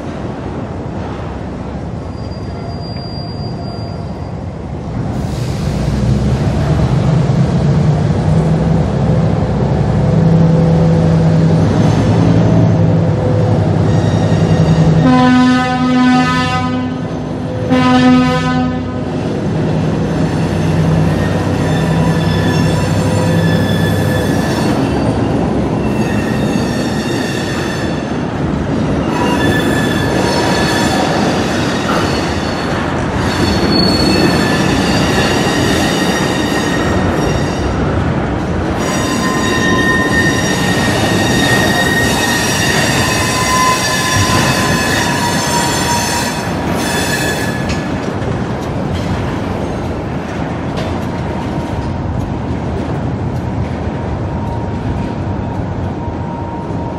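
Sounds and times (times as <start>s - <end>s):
diesel locomotive engine passing: 0.0s - 56.9s
high-pitched wheel squealing: 2.0s - 4.4s, 20.2s - 28.1s, 29.0s - 37.8s, 38.8s - 47.8s
train horn blasts: 14.2s - 19.1s.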